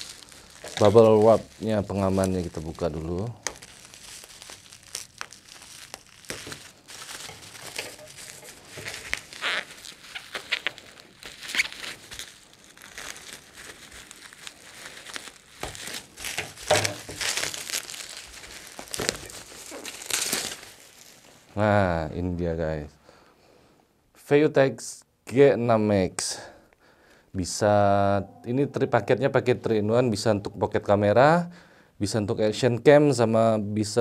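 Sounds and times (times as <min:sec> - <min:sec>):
bubble wrap crinkling: 0:00.0 - 0:22.0.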